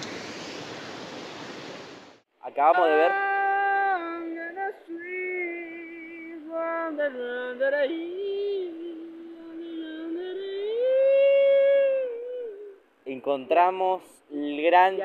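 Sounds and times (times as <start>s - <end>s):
man singing wordless tune: 2.6s - 12.8s.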